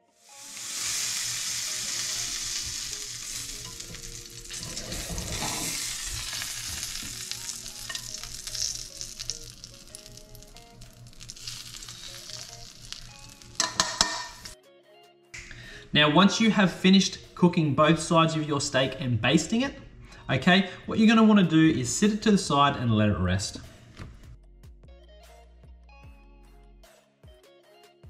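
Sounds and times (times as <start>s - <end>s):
butter sizzling in a frying pan: 0.1s - 14.6s.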